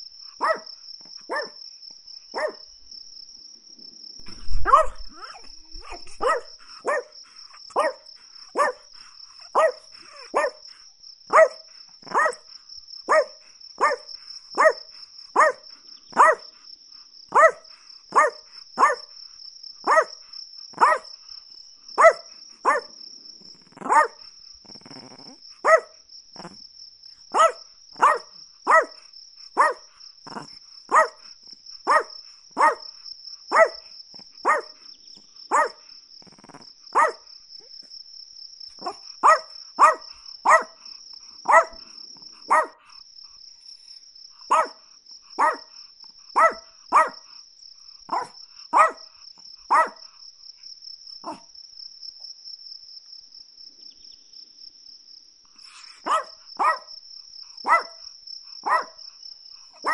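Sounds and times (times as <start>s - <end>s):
small dog yapping: 0.4s - 0.7s, 1.3s - 1.6s, 2.4s - 2.6s, 4.3s - 8.0s, 8.6s - 8.8s, 9.4s - 10.6s, 11.3s - 12.4s, 13.1s - 14.8s, 15.4s - 16.5s, 17.3s - 19.0s, 19.9s - 20.1s, 20.8s - 21.1s, 22.0s - 22.9s, 23.7s - 24.2s, 24.8s - 26.6s, 27.3s - 29.0s, 29.6s - 31.2s, 31.9s - 32.8s, 33.5s - 34.8s, 35.5s - 35.8s, 36.4s - 37.2s, 38.8s - 40.8s, 41.5s - 41.9s, 42.5s - 42.8s, 44.5s - 44.8s, 45.4s - 45.7s, 46.4s - 47.2s, 48.1s - 49.1s, 49.7s - 50.0s, 51.2s - 51.5s, 55.7s - 56.9s, 57.6s - 58.0s, 58.6s - 59.0s.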